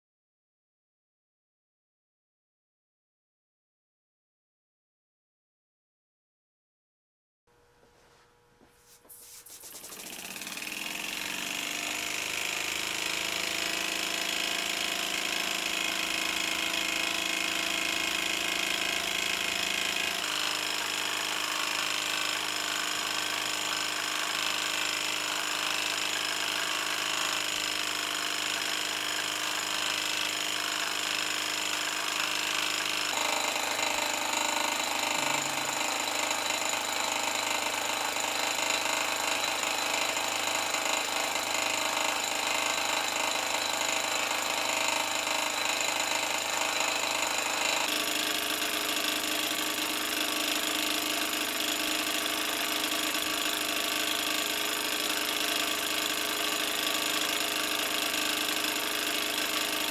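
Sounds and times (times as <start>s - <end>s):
miniature steam engine running fast: 9.6s - 59.9s.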